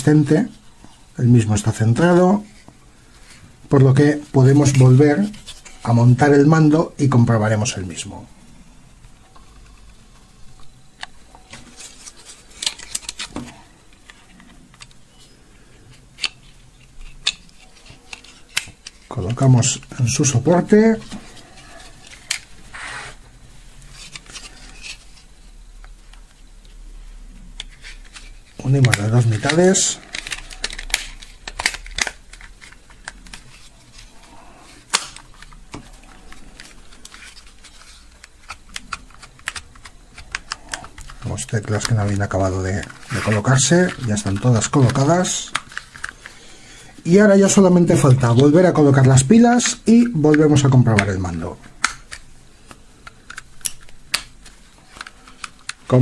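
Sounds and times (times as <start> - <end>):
plastic casing snapping: 27.5 - 33.6, 34.8 - 46.3, 50.3 - 55.9.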